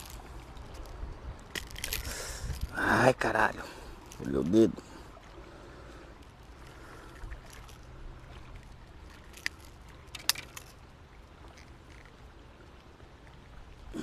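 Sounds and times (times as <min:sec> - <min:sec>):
faint handling sounds: 0:03.4 - 0:05.3.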